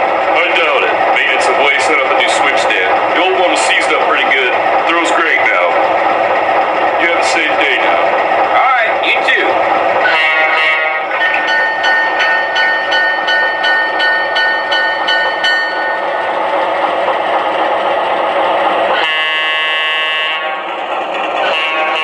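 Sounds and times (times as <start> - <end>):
wheel rumble: 0.0 - 10.2
diesel engine sound: 0.0 - 22.0
locomotive horn blast: 10.0 - 11.2, 18.9 - 20.7, 21.4 - 22.0
model locomotive bell ringing: 10.0 - 16.2.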